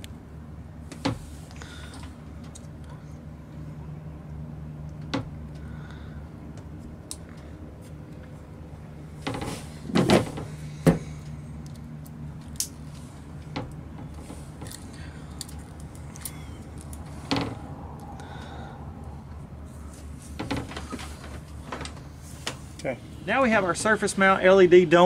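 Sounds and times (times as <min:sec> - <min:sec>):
low hum: 0:00.0 - 0:24.9
pliers clicking and snapping: 0:11.6 - 0:12.8.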